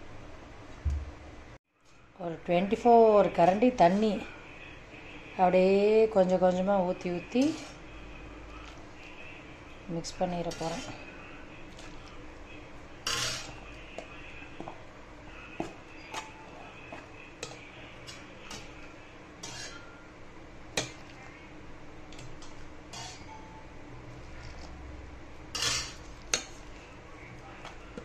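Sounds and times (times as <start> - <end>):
metal spatula scraping a pan: 7.2 - 7.9, 10.0 - 11.1, 12.9 - 13.8, 15.6 - 20.1, 22.3 - 23.4, 25.5 - 26.7.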